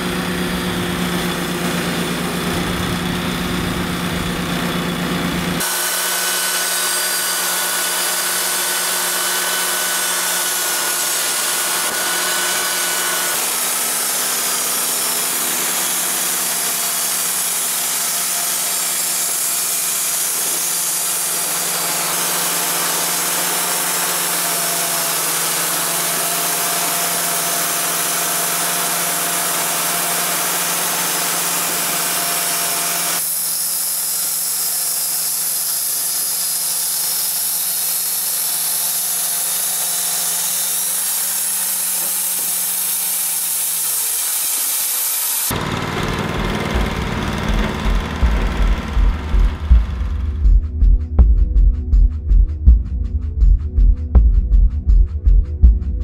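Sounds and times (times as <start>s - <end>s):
band blade cutting log with hiss: 0.0s - 45.6s
sawmill engine humming: 0.0s - 51.2s.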